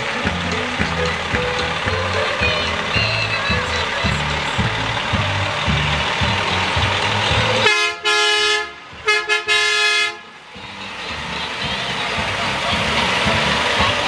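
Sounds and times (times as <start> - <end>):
truck horn blasting: 7.4 - 14.0.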